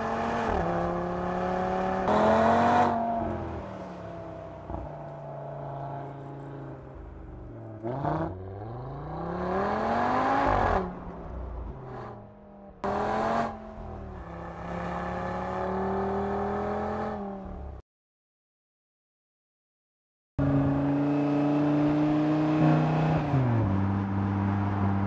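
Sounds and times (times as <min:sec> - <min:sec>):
car engine revving: 0:00.0 - 0:04.0, 0:04.6 - 0:17.7, 0:20.4 - 0:25.0.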